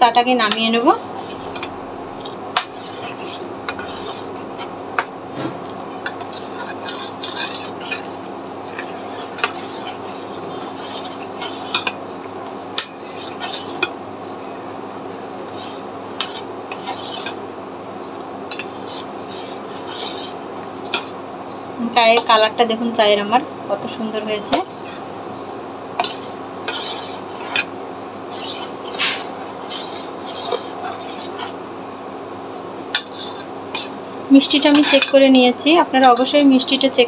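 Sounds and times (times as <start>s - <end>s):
faint hum: 0.0s - 37.0s
spoon scraping and clinking pot: 6.0s - 12.0s, 12.8s - 13.9s, 15.5s - 17.4s, 18.5s - 21.2s, 26.0s - 27.7s, 28.3s - 31.6s, 32.9s - 35.2s.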